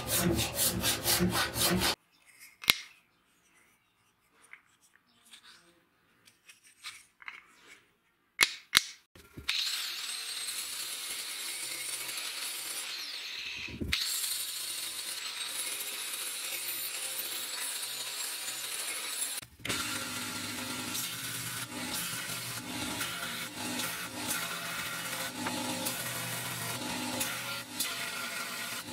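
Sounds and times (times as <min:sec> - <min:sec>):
angle grinder whining: 0:00.0 - 0:02.0, 0:09.5 - 0:28.9.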